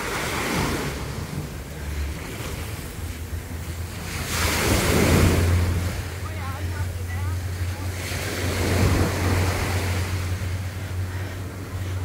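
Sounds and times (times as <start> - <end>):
small waves breaking on sand: 0.0 - 12.0.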